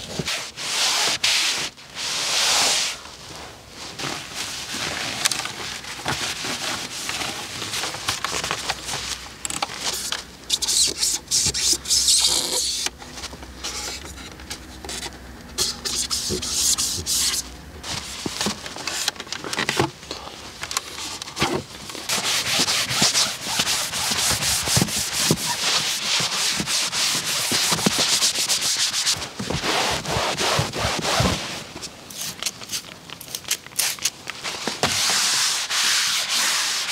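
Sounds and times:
hand scrubbing car surface: 15.6 - 17.4, 22.1 - 31.2, 34.9 - 36.9.

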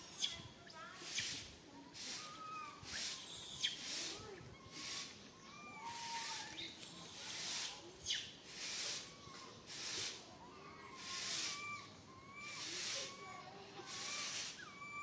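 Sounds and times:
baby monkey screaming: 10.6 - 15.0.

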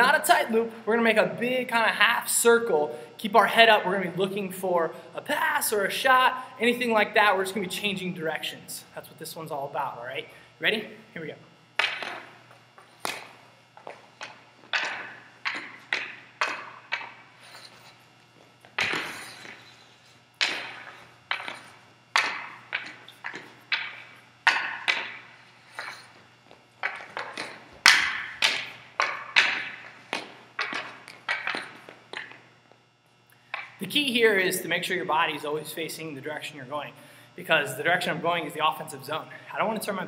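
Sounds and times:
hockey stick knocking puck: 11.8 - 17.9, 18.6 - 32.5.

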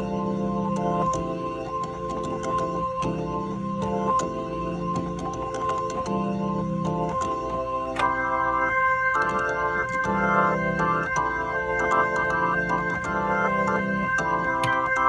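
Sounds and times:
organ chords with rotating speaker: 0.0 - 15.0
click: 0.7 - 3.2, 7.0 - 8.2.

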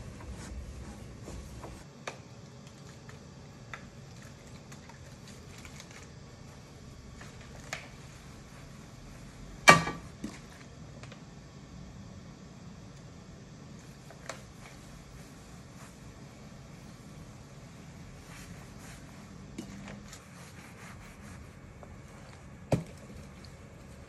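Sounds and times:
rag wiping: 0.0 - 1.9, 18.0 - 22.3.

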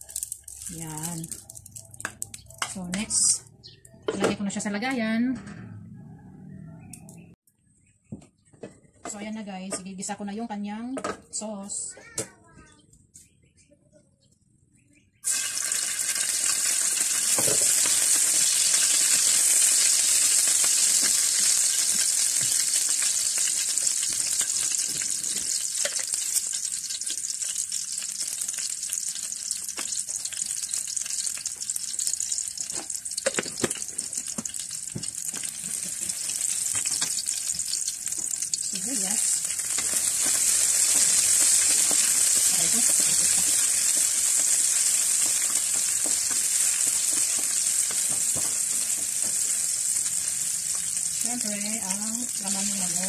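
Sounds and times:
garlic sizzling in hot oil: 0.0 - 2.8, 15.2 - 53.0.

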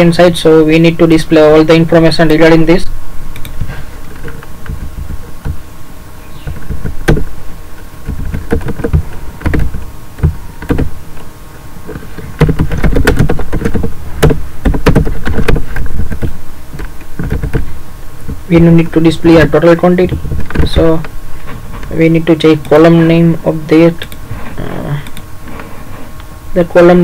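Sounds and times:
keyboard and mouse clicks: 3.3 - 5.6, 6.4 - 18.4, 25.0 - 25.2.

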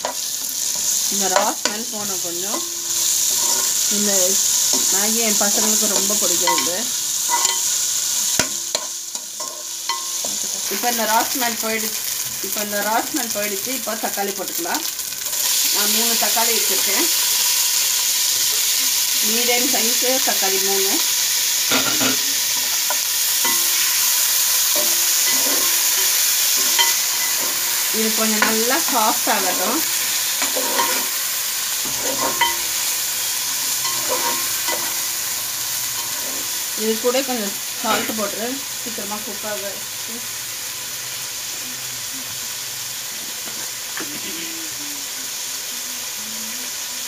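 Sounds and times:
tomatoes sizzling in hot oil: 0.0 - 47.0
metal spoon scraping a pan: 2.5 - 10.8, 21.6 - 37.1, 37.8 - 38.3.

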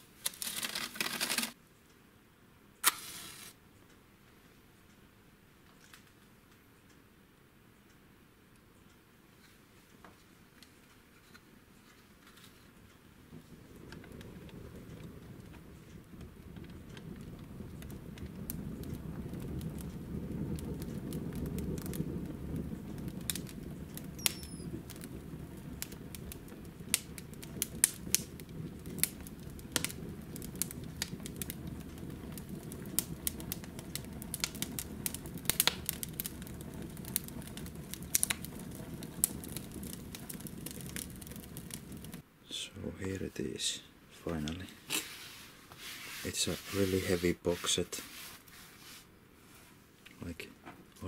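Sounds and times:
wood fire crackling and popping: 0.0 - 1.6, 2.8 - 3.6, 10.6 - 49.1
low rumble of flames: 12.2 - 51.0.

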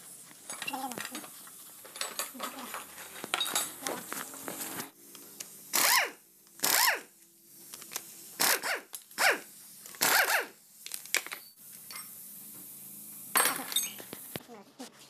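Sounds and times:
metal tools clinking: 0.4 - 4.0, 13.4 - 14.1.

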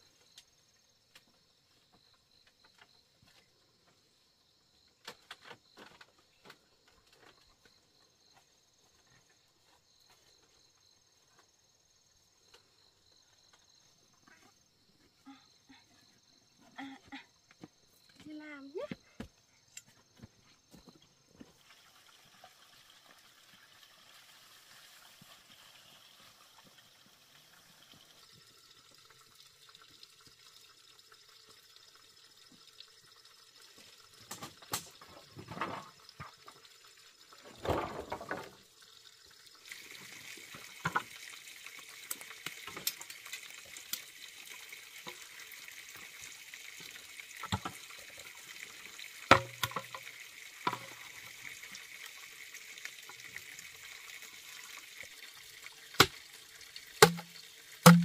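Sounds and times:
water running from tap: 21.6 - 34.7, 38.6 - 58.0.

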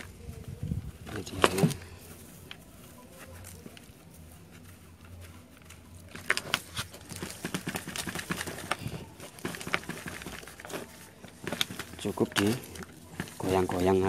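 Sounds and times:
plastic pot scratchy crackles: 0.0 - 14.0.

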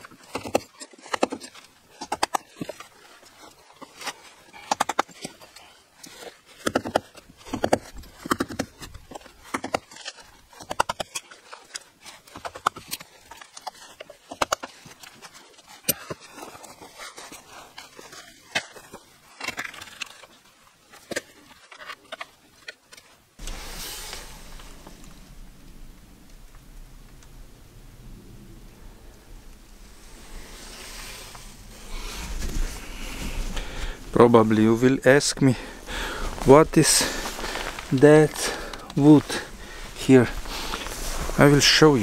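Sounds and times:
low rushing noise: 23.4 - 34.1
concrete chips scraping: 35.4 - 42.0.

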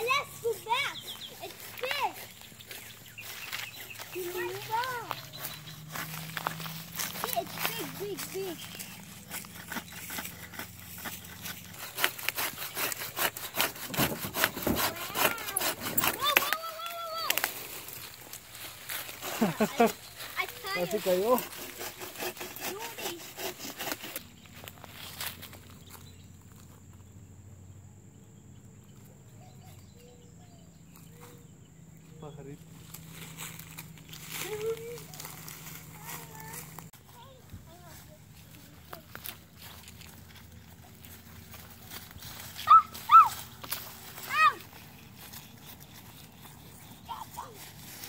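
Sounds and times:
hand saw cutting branch: 0.0 - 18.2, 18.9 - 25.3, 39.0 - 48.0.

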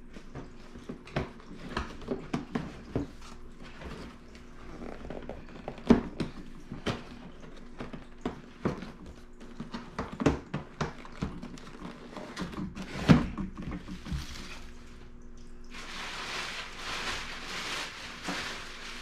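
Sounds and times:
bags rustling: 15.7 - 19.0.

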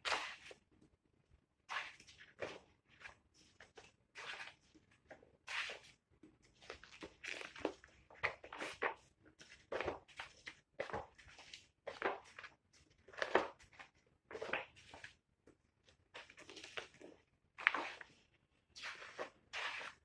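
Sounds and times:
paper pages rustling and swishing: 18.8 - 20.0.

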